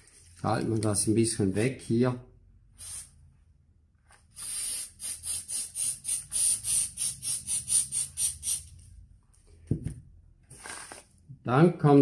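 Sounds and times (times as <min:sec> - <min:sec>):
aerosol can hissing in bursts: 0:02.8 - 0:03.2, 0:04.4 - 0:08.7.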